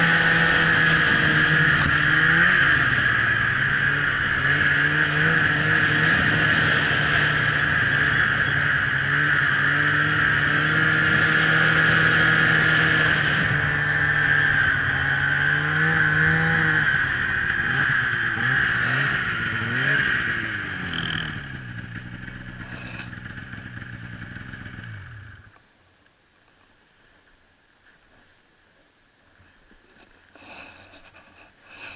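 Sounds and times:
snowmobile engine revving: 0.0s - 25.5s.

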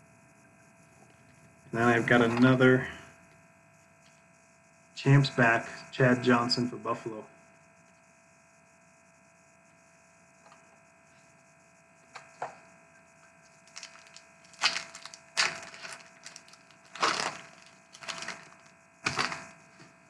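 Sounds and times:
faint electrical hum: 0.0s - 20.0s
wrapper crinkling and ripping: 13.6s - 19.5s.

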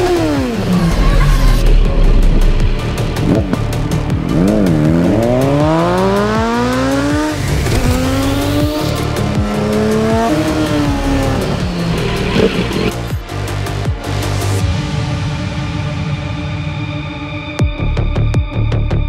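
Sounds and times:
motorcycle engine revving: 0.0s - 13.9s
music with steady beat: 0.0s - 19.0s.

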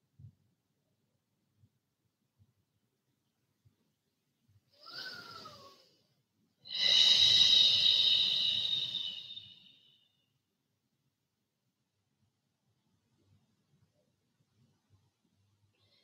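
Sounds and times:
person breathing deeply: 4.8s - 6.1s, 6.7s - 9.9s.

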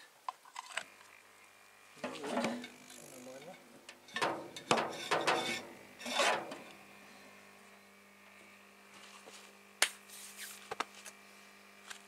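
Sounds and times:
air compressor humming: 1.9s - 12.0s
hand scraping metal tube: 4.1s - 6.6s.

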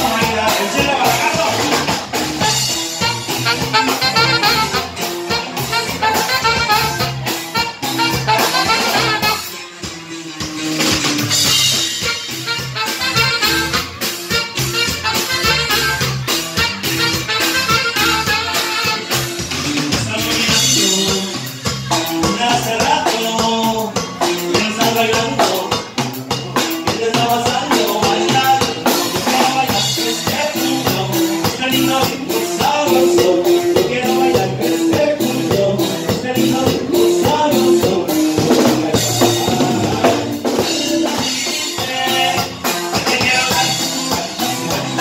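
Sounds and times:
accordion: 0.0s - 45.0s
drum kit dance beat: 0.0s - 45.0s
live band music: 0.0s - 45.0s
alto saxophone: 2.4s - 9.6s, 11.8s - 19.6s.

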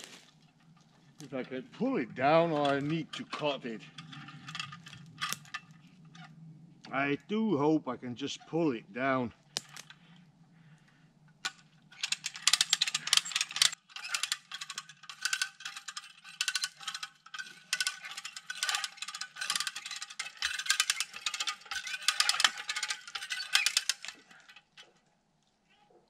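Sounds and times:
ratchet winch clicking: 12.0s - 24.2s.

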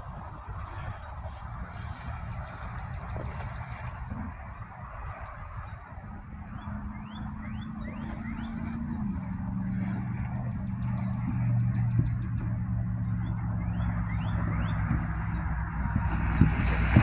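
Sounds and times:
diesel locomotive engine hum: 0.0s - 17.0s
bird chirps: 6.5s - 16.1s.

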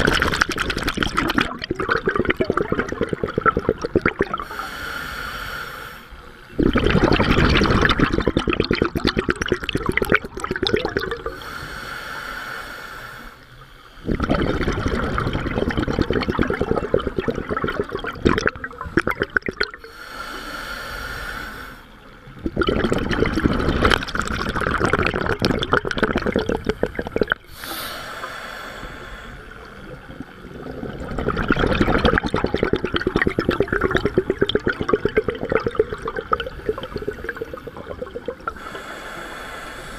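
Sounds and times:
bubbling exhalations: 0.0s - 4.6s, 6.5s - 11.5s, 14.0s - 20.0s, 22.4s - 39.9s
hissing inhalations: 4.4s - 6.4s, 11.2s - 14.2s, 19.8s - 22.0s, 26.4s - 30.5s, 36.4s - 39.9s.

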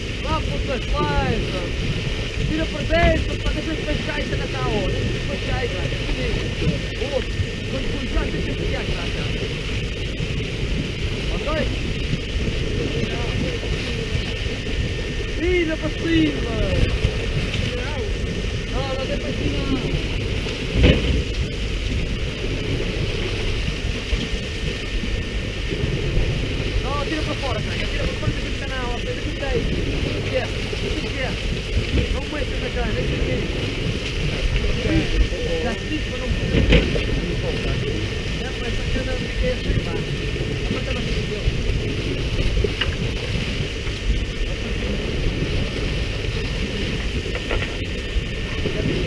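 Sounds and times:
boat engine rumble: 0.0s - 49.0s
water spraying on sea surface: 0.0s - 49.0s
wind: 0.0s - 49.0s.

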